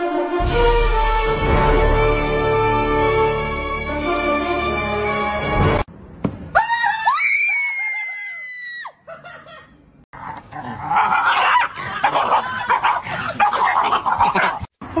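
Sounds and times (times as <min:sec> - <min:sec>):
loud high scream: 0:06.5 - 0:09.0.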